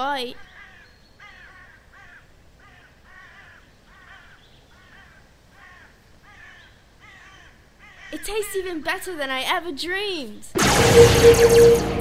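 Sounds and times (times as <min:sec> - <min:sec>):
crows cawing: 0:00.4 - 0:08.2.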